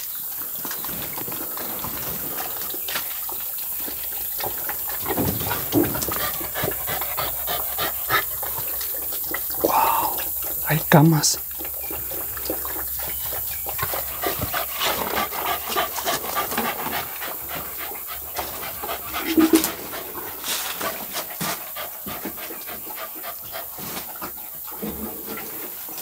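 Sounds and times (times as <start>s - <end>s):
dog panting: 4.5s - 10.3s, 12.6s - 24.8s.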